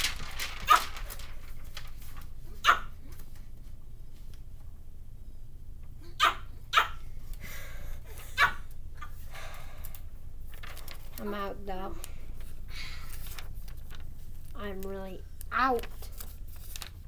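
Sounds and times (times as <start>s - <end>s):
low steady hum: 0.0s - 17.0s
dog barks: 2.6s - 2.9s, 6.2s - 7.0s.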